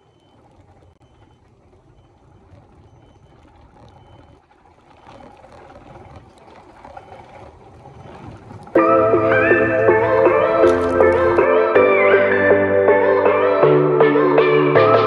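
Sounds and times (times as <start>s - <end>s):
cart rolling on corridor floor: 2.0s - 8.8s, 10.4s - 11.4s.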